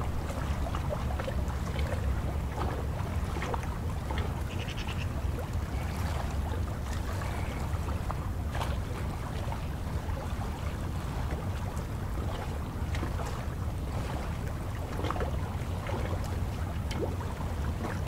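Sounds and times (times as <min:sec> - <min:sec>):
waves lapping and splashing: 0:00.0 - 0:18.0
wind rumbling on microphone: 0:00.0 - 0:18.0
high bird calls: 0:04.5 - 0:05.1.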